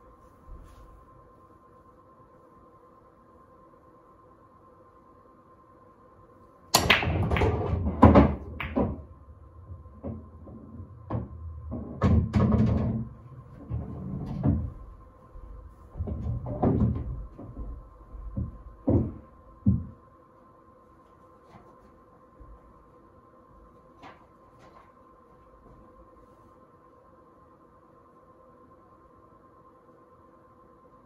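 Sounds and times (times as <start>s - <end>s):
cue ball cracking into rack: 6.8s - 9.1s
pool balls clacking together: 6.8s - 9.2s, 9.8s - 14.8s.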